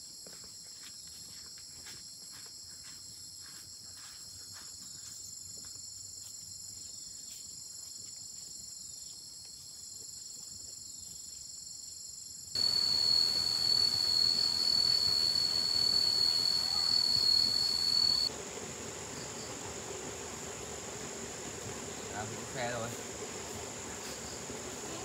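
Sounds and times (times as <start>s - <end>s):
insects chorus: 2.3s - 25.0s
steady noise with high whine: 12.6s - 25.0s.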